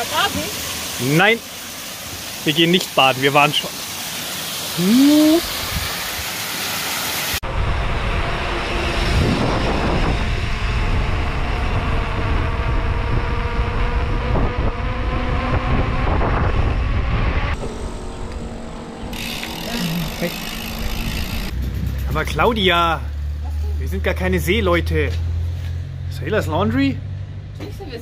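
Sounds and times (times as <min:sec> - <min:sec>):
waterfall rushing: 0:00.0 - 0:07.4
wind rumble on microphone: 0:07.4 - 0:17.6.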